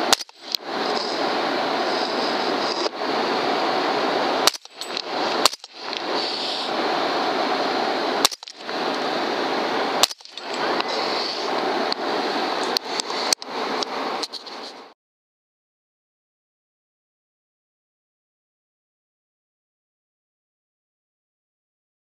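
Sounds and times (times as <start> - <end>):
rifle shots: 0.0 - 0.5, 4.4 - 5.8, 10.0 - 10.5
steady hiss: 0.0 - 15.0.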